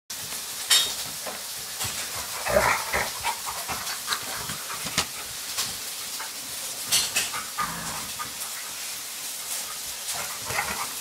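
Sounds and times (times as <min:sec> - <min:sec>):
dogs scuffling: 0:00.2 - 0:11.0
steady breathy hiss: 0:00.2 - 0:11.0
puppy vocal noises: 0:02.0 - 0:05.4, 0:06.1 - 0:11.0.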